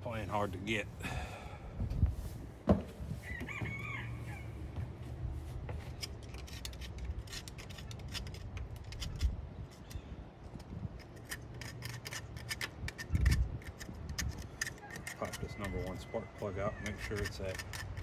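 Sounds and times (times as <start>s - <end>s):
metallic clicks and scraping of tools: 5.8s - 18.0s.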